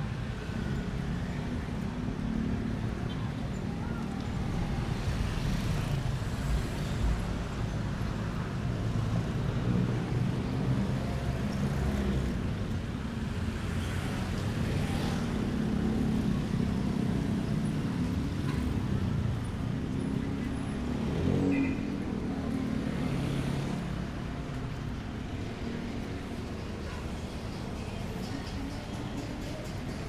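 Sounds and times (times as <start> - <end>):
tyres on road: 0.0 - 30.0
cars passing: 1.0 - 30.0
motorcycles passing: 13.6 - 29.9.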